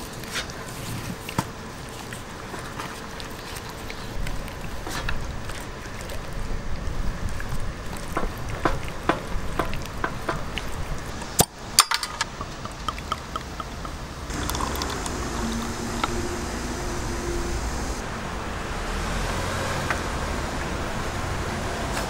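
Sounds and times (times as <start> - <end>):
hands working wet marinade: 0.0 - 16.8
beer pouring into a glass: 12.6 - 16.8.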